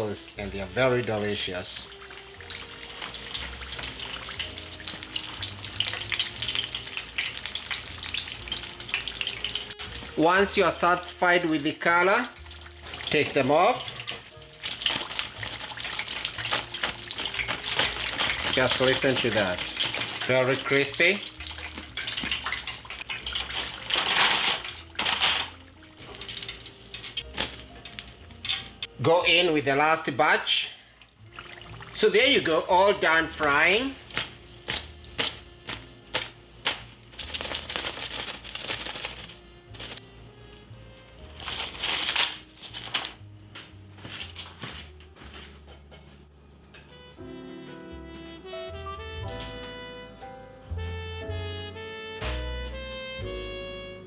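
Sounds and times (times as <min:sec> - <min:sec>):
food deep-frying in bubbling oil: 0:00.0 - 0:29.2, 0:30.9 - 0:40.0
soft background music: 0:00.0 - 0:54.0.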